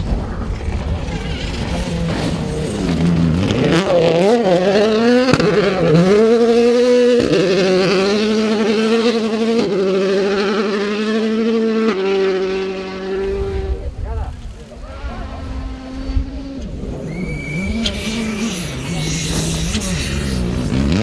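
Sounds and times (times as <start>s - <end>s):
rally car engine at full throttle: 0.0s - 21.0s
gear upshifts: 14.6s - 21.0s.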